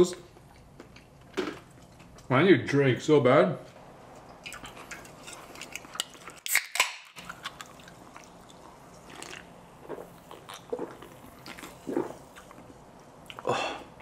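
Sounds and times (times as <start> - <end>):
soft gulps of soda: 8.2 - 12.7.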